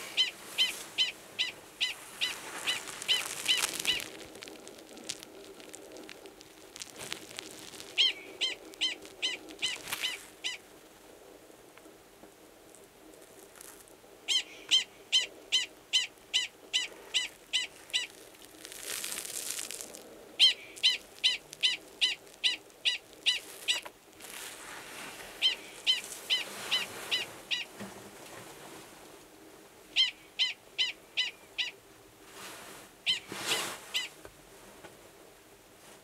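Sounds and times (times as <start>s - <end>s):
prairie dog high chirps: 0.1s - 4.2s, 6.8s - 10.6s, 14.3s - 18.2s, 20.4s - 23.9s, 25.4s - 27.7s, 30.0s - 31.8s.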